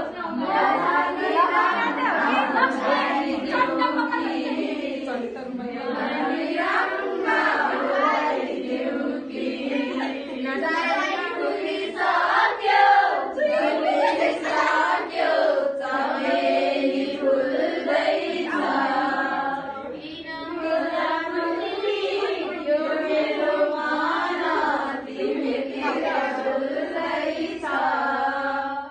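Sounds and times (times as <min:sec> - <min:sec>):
girls singing together: 0:00.0 - 0:28.9.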